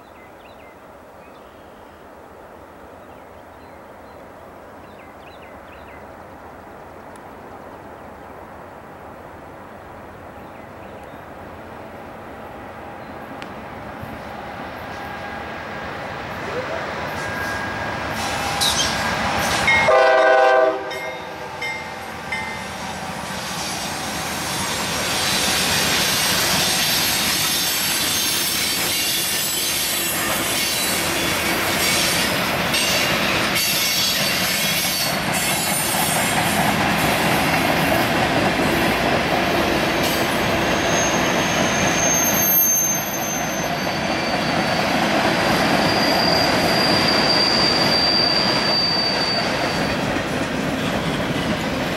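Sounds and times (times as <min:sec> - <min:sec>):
train cars rumbling: 0:04.2 - 0:51.9
locomotive horn blast: 0:17.1 - 0:21.7
wheel squeal: 0:17.2 - 0:19.8, 0:40.0 - 0:50.2.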